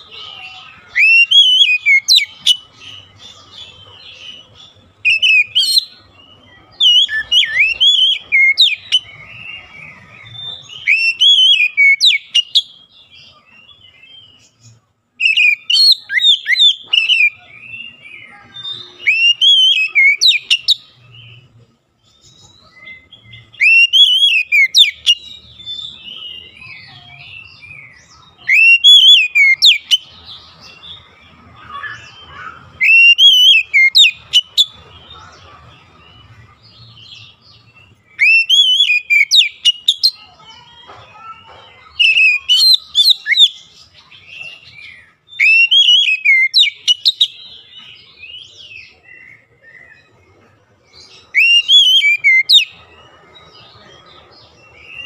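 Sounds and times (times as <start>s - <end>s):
bird whistling song: 0.0s - 35.5s, 36.2s - 40.6s, 41.2s - 50.2s, 50.9s - 55.0s.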